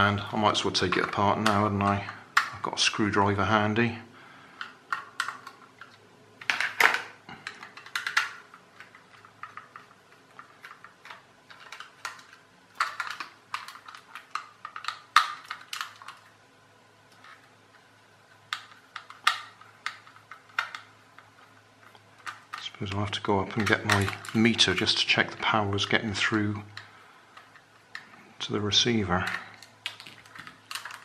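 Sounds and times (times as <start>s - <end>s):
plastic clicks and knocks: 4.6s - 16.3s, 23.5s - 24.5s.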